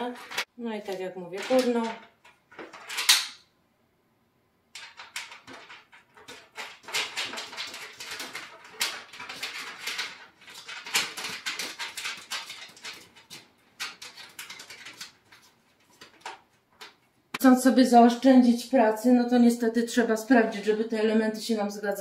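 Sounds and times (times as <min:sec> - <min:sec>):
metallic clicks and scrapes: 0:00.0 - 0:00.5, 0:04.8 - 0:17.0.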